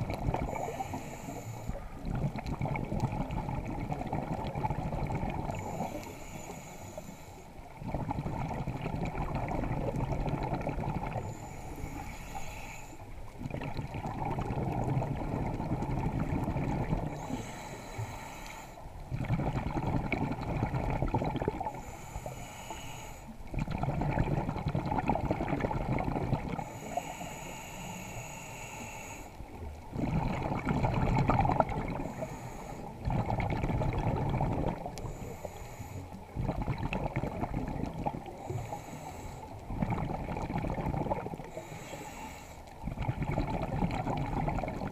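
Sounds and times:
exhaled bubbles rushing: 0:00.0 - 0:00.8, 0:01.8 - 0:06.0, 0:07.7 - 0:11.3, 0:13.3 - 0:17.2, 0:19.1 - 0:21.8, 0:23.4 - 0:26.7, 0:29.8 - 0:32.2, 0:33.0 - 0:35.1, 0:36.3 - 0:38.6, 0:39.6 - 0:41.6, 0:42.8 - 0:44.9
regulator inhale hiss: 0:00.3 - 0:02.1, 0:05.4 - 0:07.7, 0:11.1 - 0:13.4, 0:17.0 - 0:19.0, 0:21.6 - 0:23.5, 0:26.5 - 0:29.7, 0:32.0 - 0:33.1, 0:34.8 - 0:36.4, 0:38.2 - 0:39.7, 0:41.4 - 0:42.8.

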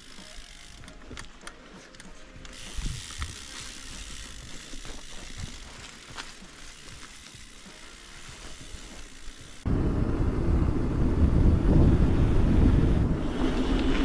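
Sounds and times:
bike clicks and knocks: 0:00.0 - 0:09.6
bike freehub ticking: 0:00.0 - 0:09.7
tyre rushing on dirt trail: 0:00.0 - 0:09.7.

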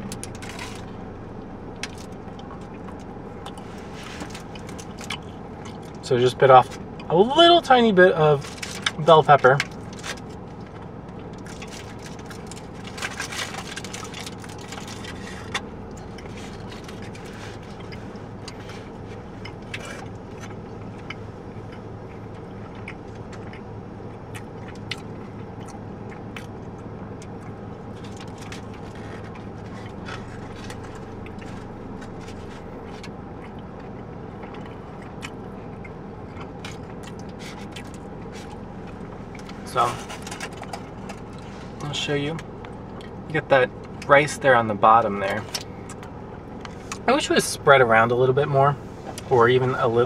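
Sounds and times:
low hum inside car: 0:00.0 - 0:50.0
chewing: 0:01.7 - 0:06.0, 0:09.6 - 0:41.8, 0:45.3 - 0:47.1
foil wrapper crinkling: 0:11.4 - 0:17.9.

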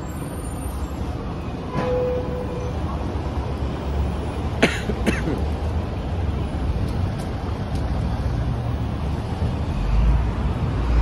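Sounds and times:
city street traffic rumble: 0:00.0 - 0:11.0
person coughing: 0:04.6 - 0:05.5.

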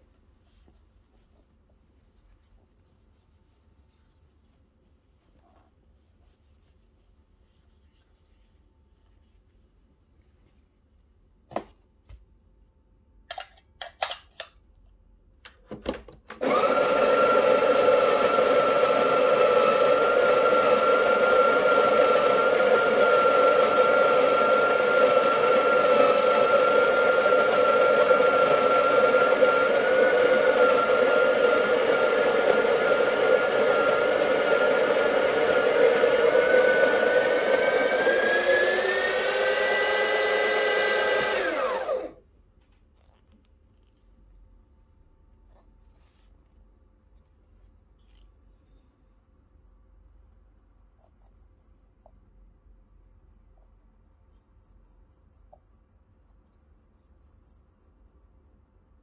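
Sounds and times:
espresso machine pump humming: 0:16.4 - 0:42.2.

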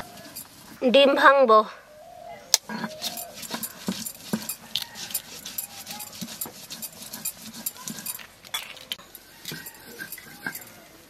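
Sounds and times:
metal bowl clinking: 0:00.0 - 0:00.8, 0:02.7 - 0:10.8
faint animal calls: 0:01.7 - 0:06.4.

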